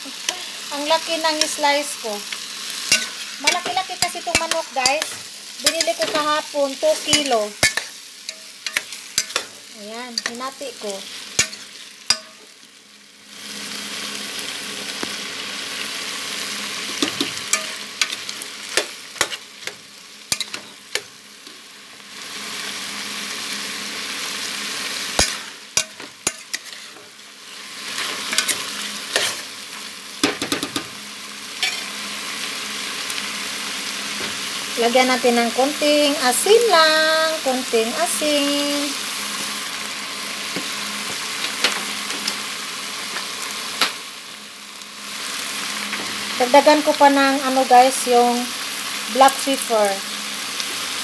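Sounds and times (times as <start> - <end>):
chicken sizzling in a pot: 0.0 - 51.0
metal spoon clinking against pot: 2.9 - 6.2, 7.1 - 9.5, 11.4 - 12.4.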